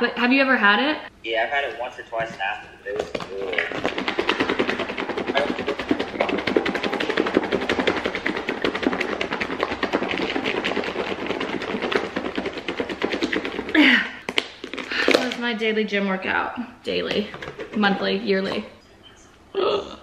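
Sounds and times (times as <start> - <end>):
salad rattling in plastic bowl: 3.0 - 15.4.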